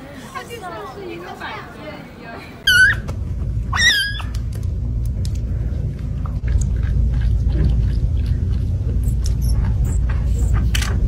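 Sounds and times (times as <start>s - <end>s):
low rumble: 2.7s - 11.0s.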